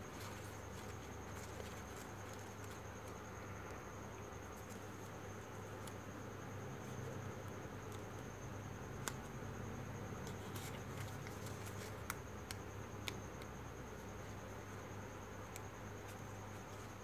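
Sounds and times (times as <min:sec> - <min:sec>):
steady low hum: 0:00.0 - 0:17.0
paper crackling and clicking: 0:00.1 - 0:03.8, 0:10.2 - 0:13.5.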